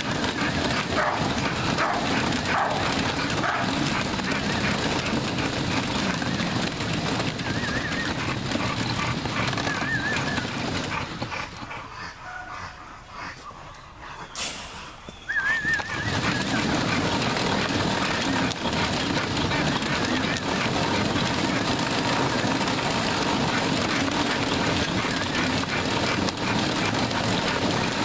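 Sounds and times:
treadmill rumbling and clattering: 0:00.0 - 0:13.4, 0:14.5 - 0:28.0
dog paws trotting: 0:00.0 - 0:28.0
bird warbling call: 0:12.0 - 0:16.6.

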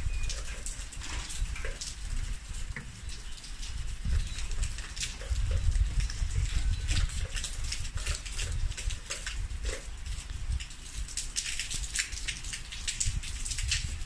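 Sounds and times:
rain falling: 0:00.0 - 0:14.0
wind buffeting microphone: 0:00.0 - 0:14.0.

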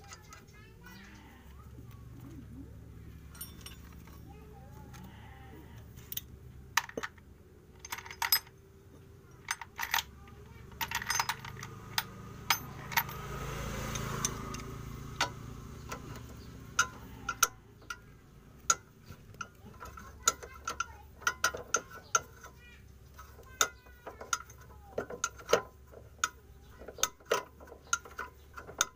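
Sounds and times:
ratchet wrench clicking: 0:09.4 - 0:28.9.

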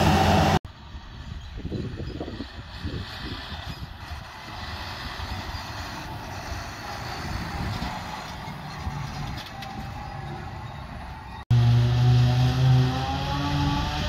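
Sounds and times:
harvester engine hum with whine: 0:00.0 - 0:14.0
tractor engine running: 0:01.8 - 0:12.7.

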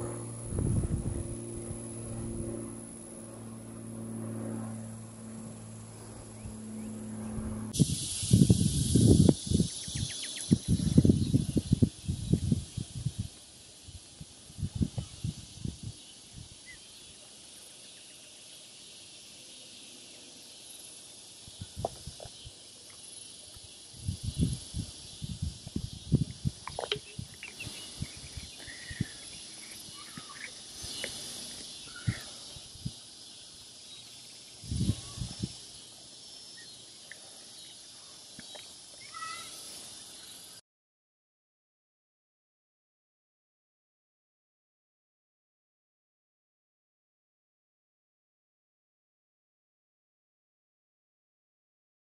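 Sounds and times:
low mechanical hum: 0:00.0 - 0:40.5
insect chorus: 0:00.0 - 0:40.6.

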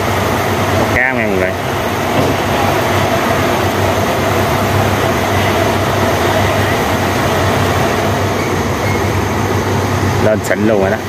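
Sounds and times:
constant hiss: 0:00.0 - 0:11.0
machine droning: 0:00.0 - 0:11.0.

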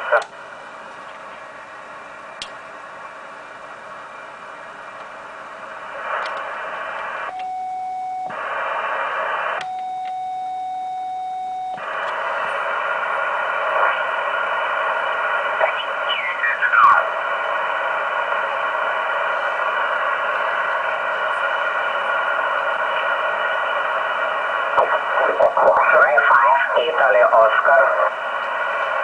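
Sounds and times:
radio receiver hiss: 0:04.8 - 0:07.4, 0:08.3 - 0:09.8, 0:11.8 - 0:29.0
steady beep: 0:07.3 - 0:08.3, 0:09.6 - 0:11.8.

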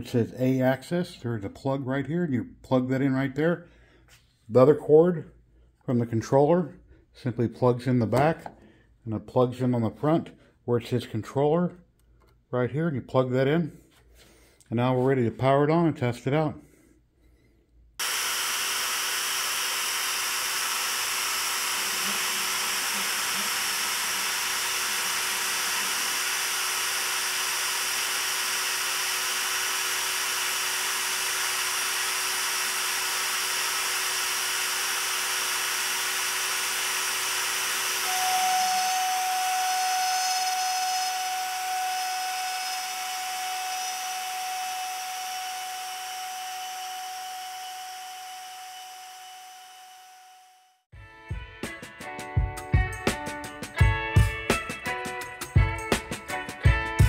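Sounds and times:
router spindle running: 0:18.0 - 0:50.7.

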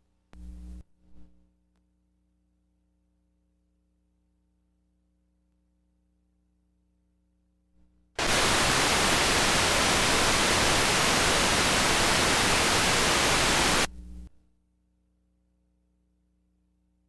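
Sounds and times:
faint electrical hum: 0:07.9 - 0:14.8
loud static hiss: 0:08.2 - 0:13.9.

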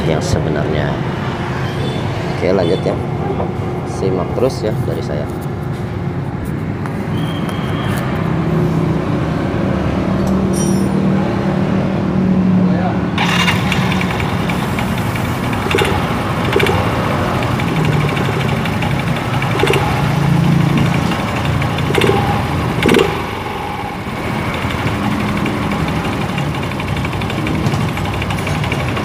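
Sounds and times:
rough rattling from drive: 0:13.2 - 0:29.0
scooter engine revving: 0:13.2 - 0:29.0
sharp clicks from drive: 0:13.2 - 0:29.0.

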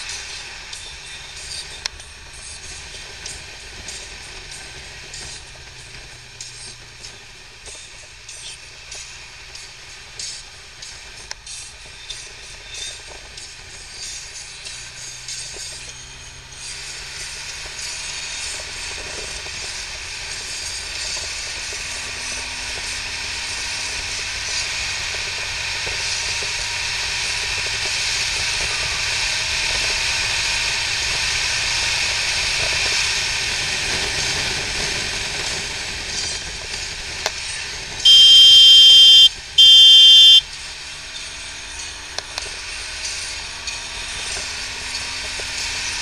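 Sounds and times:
motorcycle engine while riding: 0:00.0 - 0:46.0
loud steady high tones: 0:38.0 - 0:40.4.

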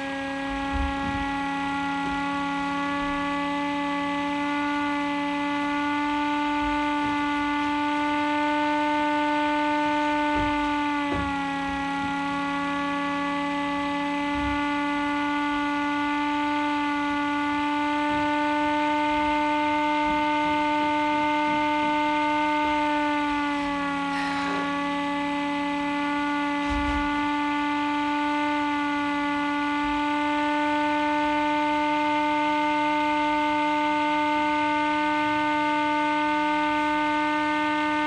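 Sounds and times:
electric motor siren: 0:00.0 - 0:38.0.

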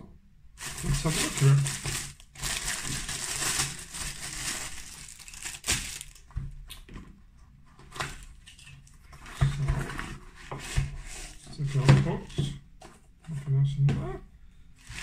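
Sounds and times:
plastic bag crinkling: 0:00.6 - 0:06.4.

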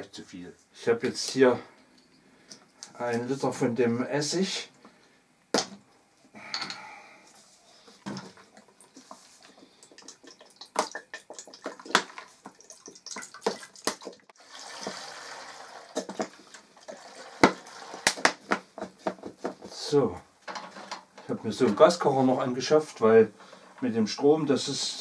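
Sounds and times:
liquid pouring into pot: 0:08.9 - 0:18.2.

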